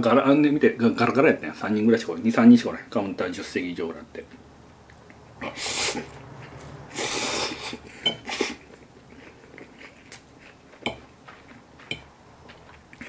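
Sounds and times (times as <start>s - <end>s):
quiet chewing: 4.3s - 13.0s
spaghetti slurping: 5.4s - 10.5s.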